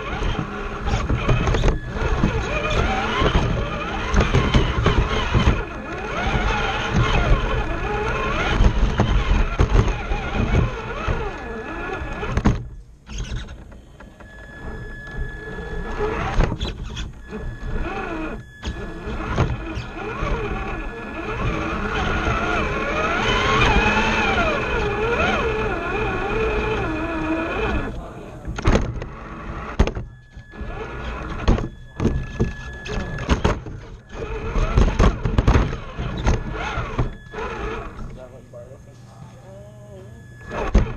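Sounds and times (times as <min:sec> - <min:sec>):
electric motor whining: 0:00.0 - 0:40.9
clicks and knocks: 0:28.4 - 0:37.3.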